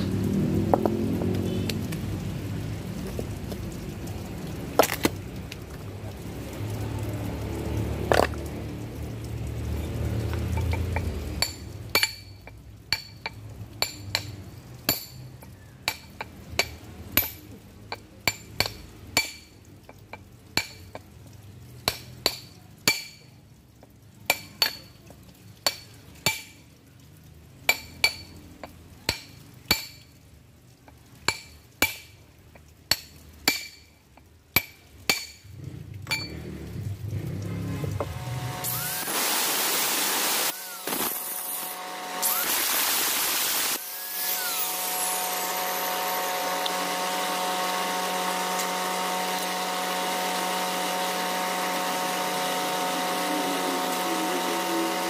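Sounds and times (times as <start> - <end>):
hammer striking steel chisel: 11.4 - 14.3, 32.9 - 33.9, 34.6 - 35.4.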